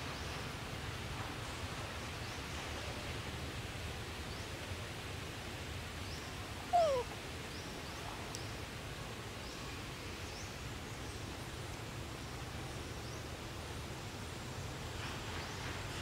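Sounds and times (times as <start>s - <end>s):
forest background hiss: 0.0s - 16.0s
faint high chirps: 6.7s - 7.1s
monkey call sliding down: 6.8s - 7.1s.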